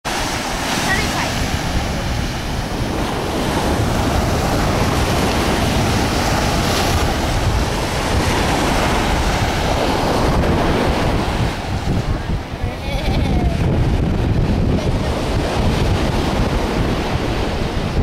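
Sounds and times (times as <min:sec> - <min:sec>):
ocean surf: 0:00.1 - 0:18.0
wind buffeting the microphone: 0:00.1 - 0:18.0.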